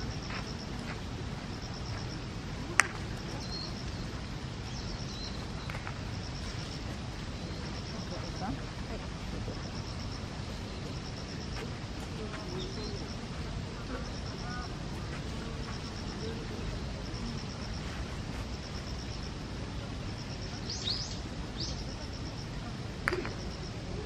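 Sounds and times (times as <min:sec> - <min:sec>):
background hiss: 0:00.0 - 0:24.0
faint bird chirps: 0:03.2 - 0:08.4, 0:20.6 - 0:22.3.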